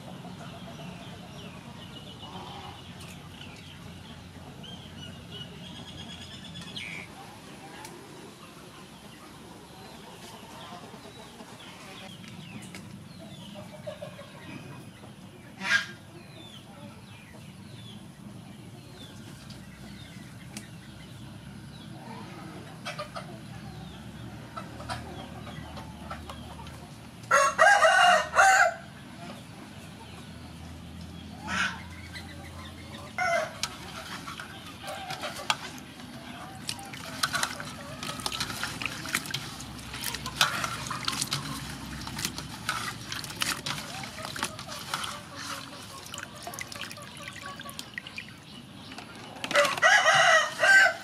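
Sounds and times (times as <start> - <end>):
rooster crowing: 27.3 - 28.9, 49.5 - 51.0.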